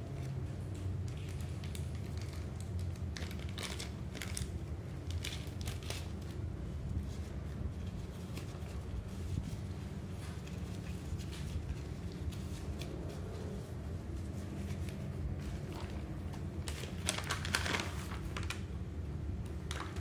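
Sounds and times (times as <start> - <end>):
plastic bag crinkling: 1.1 - 6.4, 15.2 - 18.8.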